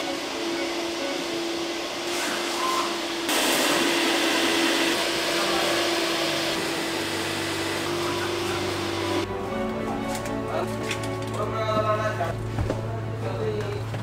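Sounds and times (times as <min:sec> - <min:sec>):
electric motor whining: 0:00.0 - 0:09.3.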